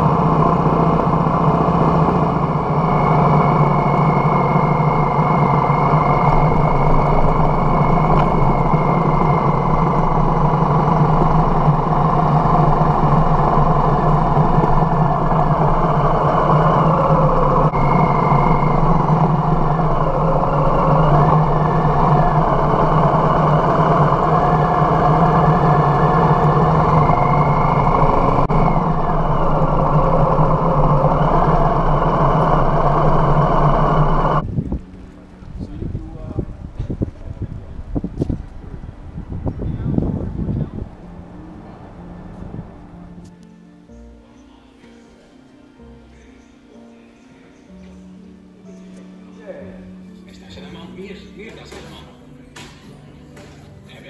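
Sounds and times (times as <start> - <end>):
motorcycle engine running: 0.0 - 41.3.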